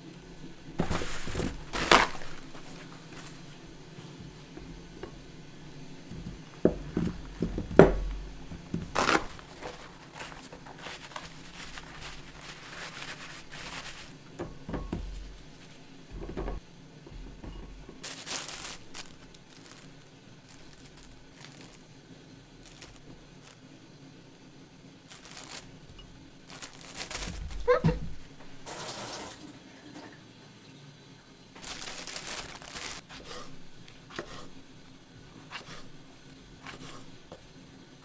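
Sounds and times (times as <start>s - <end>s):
paper towels rustling: 0.0s - 29.4s, 31.6s - 37.6s
dull thuds: 25.1s - 28.6s.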